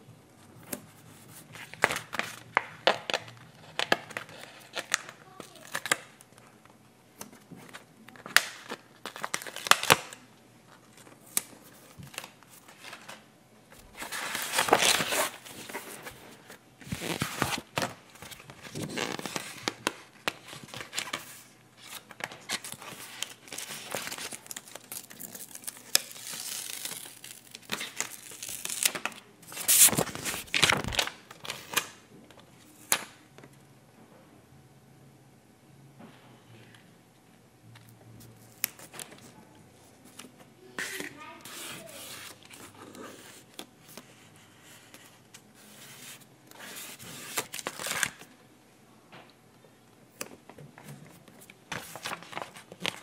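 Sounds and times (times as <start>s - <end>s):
paper stickers rustling and peeling: 13.9s - 31.9s, 40.0s - 48.2s, 50.2s - 53.0s.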